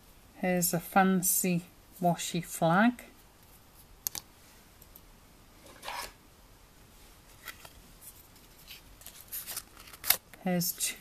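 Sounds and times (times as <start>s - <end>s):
cardstock rustling: 7.3s - 10.2s.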